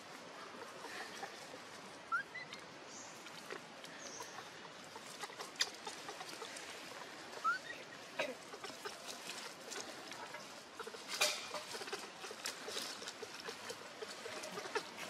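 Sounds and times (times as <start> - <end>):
baby monkey squeaks: 2.1 - 2.6, 7.4 - 7.7
dry leaves crackling: 4.3 - 15.0.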